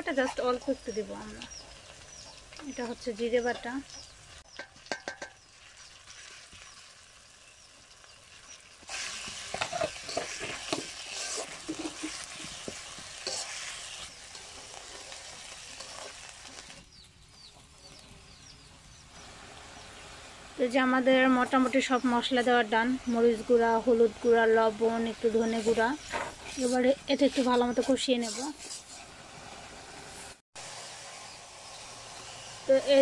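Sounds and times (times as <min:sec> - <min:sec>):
onions sizzling in hot oil: 0:00.0 - 0:33.0
metal spatula scraping pan: 0:08.8 - 0:16.7, 0:25.4 - 0:29.1.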